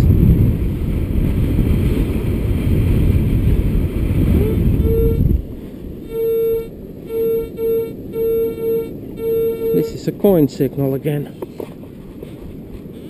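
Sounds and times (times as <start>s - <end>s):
wind buffeting microphone: 0.0s - 6.1s
metal detector beeps: 4.4s - 5.2s, 6.1s - 10.0s.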